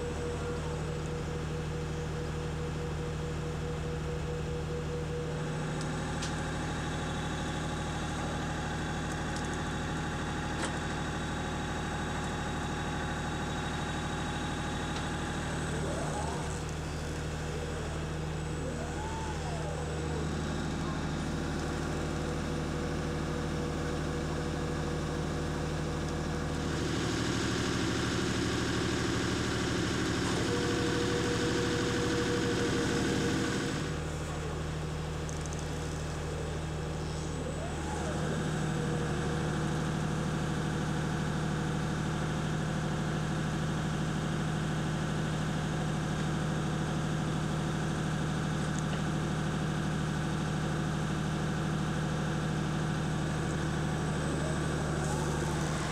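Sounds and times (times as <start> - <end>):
brief whine: 0.0 - 23.0, 29.9 - 40.9, 52.6 - 55.9
diesel engine running: 0.0 - 55.9.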